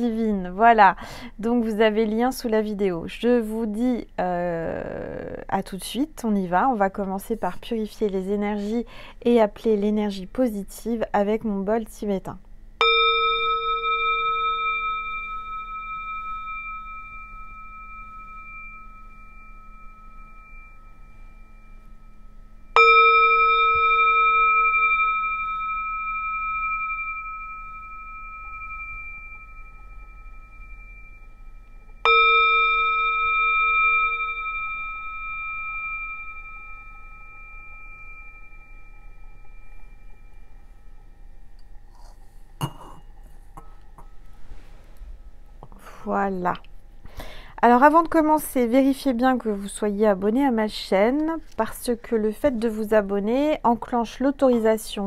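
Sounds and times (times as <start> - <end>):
singing bowl struck ringing: 12.8 - 44.2.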